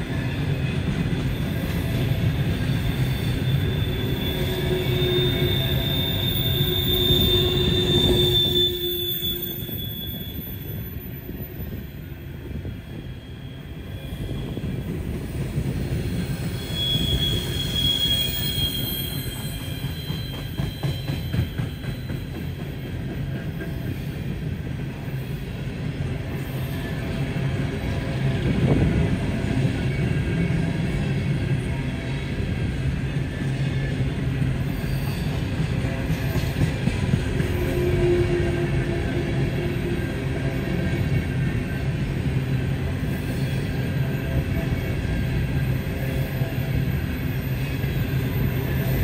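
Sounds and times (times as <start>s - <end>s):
freight train rumbling past: 0.0s - 49.0s
high wheel squeal: 1.2s - 12.0s, 12.6s - 14.8s, 16.1s - 22.6s, 34.6s - 36.7s.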